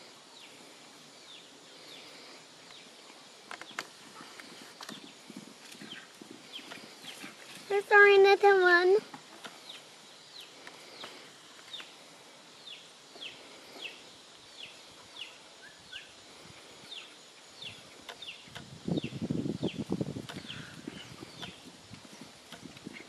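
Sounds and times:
bird chirping: 0.0s - 7.4s, 9.4s - 16.2s, 16.8s - 23.0s
hooves thudding on grass: 3.5s - 8.4s.

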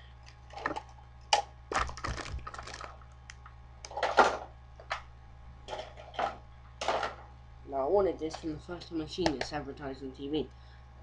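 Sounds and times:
small hard objects clattering: 1.7s - 3.0s.

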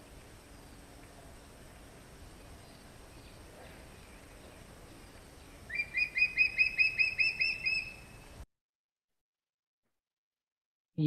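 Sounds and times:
hawk eagle shrill squeaky calls: 5.7s - 8.2s.

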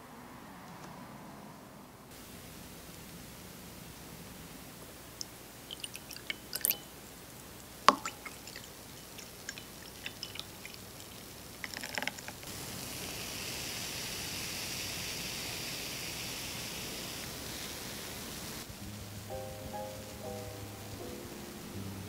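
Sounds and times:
glass cup clinking: 5.7s - 6.9s, 7.9s - 12.3s
milk pouring into cup: 5.7s - 6.9s, 7.9s - 12.5s.

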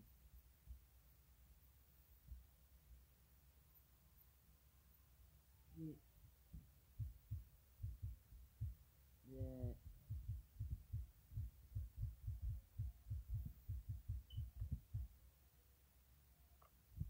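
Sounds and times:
dull low thumps: 6.5s - 15.2s
short low tone: 9.3s - 9.8s.

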